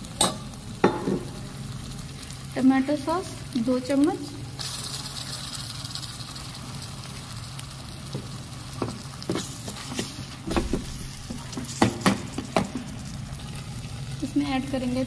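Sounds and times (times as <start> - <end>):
vegetables sizzling in a wok: 0.0 - 15.0.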